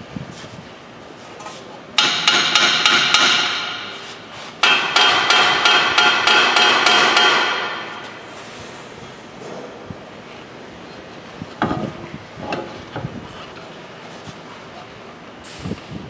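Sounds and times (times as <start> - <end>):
hammer striking steel: 2.0 - 8.2.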